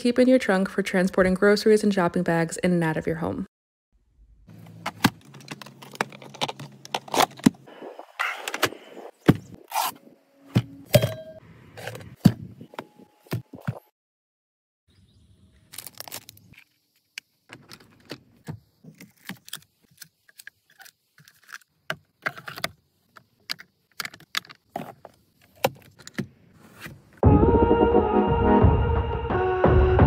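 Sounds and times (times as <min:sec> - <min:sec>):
hard plastic items clicking: 0:04.7 - 0:07.6, 0:17.5 - 0:26.3
loud music: 0:27.2 - 0:30.0.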